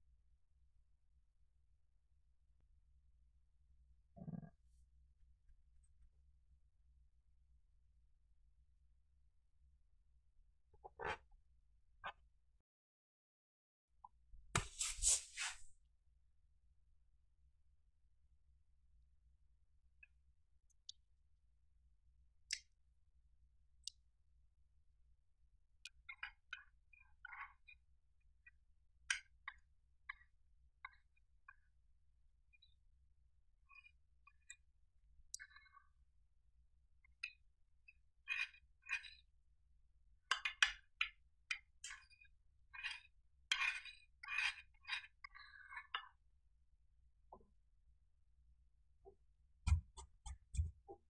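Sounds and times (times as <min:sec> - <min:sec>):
spoon stirring wet slime: 0:14.6 - 0:15.6.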